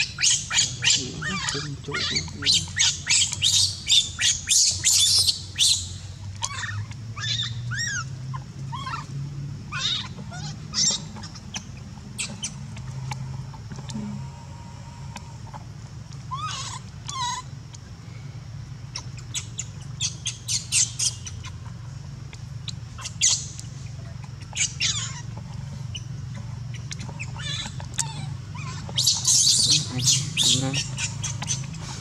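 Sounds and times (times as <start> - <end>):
baby monkey screaming: 0.0 - 12.9, 16.3 - 17.6, 18.9 - 21.6, 22.6 - 23.6, 24.2 - 26.1, 26.7 - 32.0.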